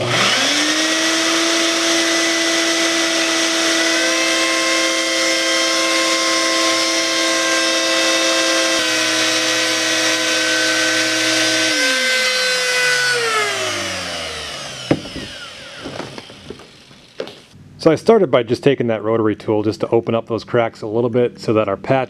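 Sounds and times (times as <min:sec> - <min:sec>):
rotary tool whirring: 0:00.0 - 0:17.6
shop vacuum running: 0:00.0 - 0:17.6
sharp knock: 0:14.9 - 0:16.2.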